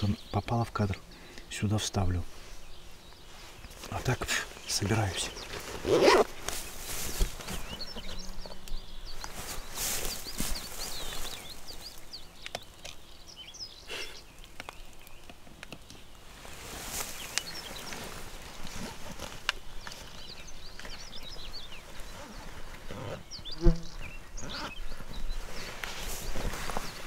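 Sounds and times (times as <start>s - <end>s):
small birds chirping: 0.0s - 27.0s
small clicks and knocks: 12.4s - 13.0s, 14.4s - 16.0s.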